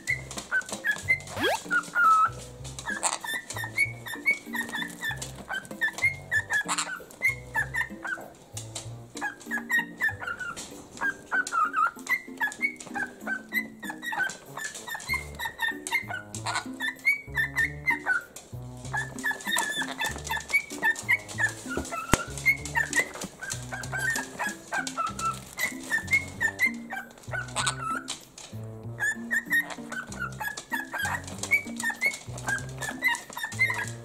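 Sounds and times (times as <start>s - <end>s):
parrots chirping and whistling: 0.0s - 34.0s
background music with bass: 2.3s - 4.2s, 8.6s - 9.3s, 16.1s - 19.3s, 20.0s - 24.3s, 25.0s - 27.9s, 28.5s - 33.0s.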